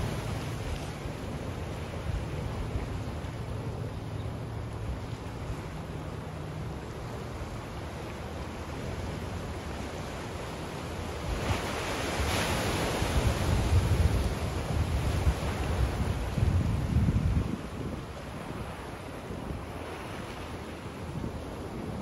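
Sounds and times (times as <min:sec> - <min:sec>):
wind gusting on microphone: 0:11.1 - 0:22.0.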